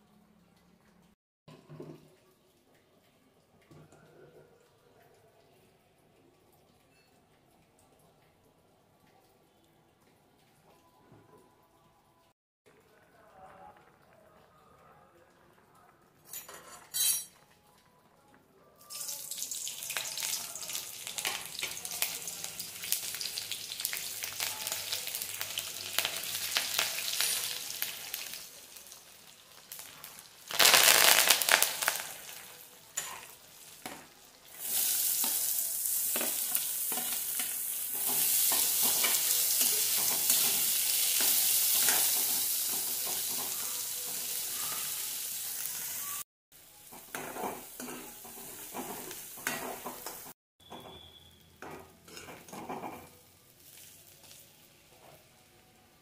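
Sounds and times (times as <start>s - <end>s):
hot oil sizzling: 18.8s - 55.4s
onions frying: 18.8s - 55.4s.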